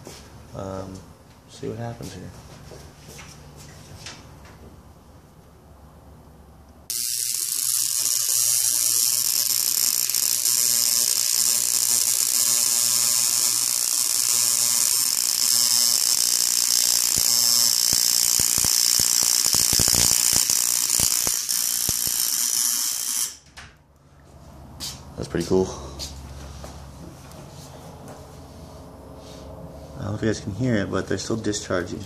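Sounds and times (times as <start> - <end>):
low electrical hum: 0.0 - 32.0
electrical arcing hiss and buzz: 6.9 - 23.4
sharp crackling sparks: 6.9 - 23.4.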